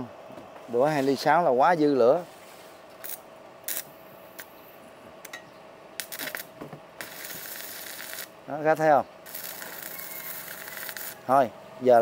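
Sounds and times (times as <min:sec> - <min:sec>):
welding arc crackling: 0:03.0 - 0:04.5, 0:06.0 - 0:11.5.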